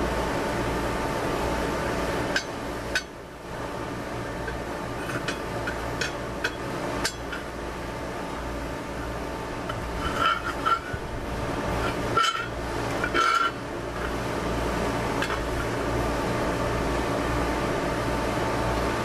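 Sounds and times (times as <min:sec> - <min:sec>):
steel rim clanking against metal rods: 0:02.3 - 0:03.2, 0:04.3 - 0:07.6, 0:09.6 - 0:14.2, 0:15.2 - 0:15.8.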